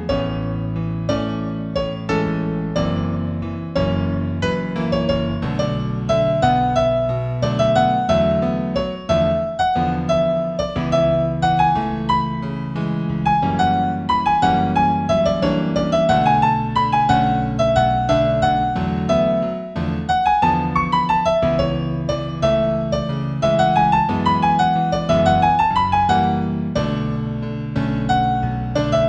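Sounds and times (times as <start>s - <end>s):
solo piano music: 0.0s - 29.0s.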